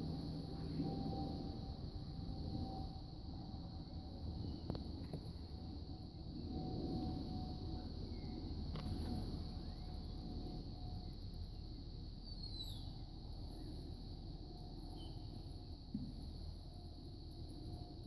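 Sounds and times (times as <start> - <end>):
steady low rumble: 0.0 - 18.0.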